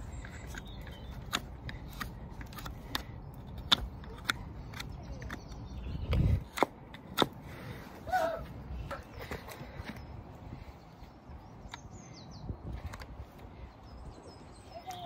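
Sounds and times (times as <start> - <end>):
hoof knife cutting hoof: 0.0 - 8.4.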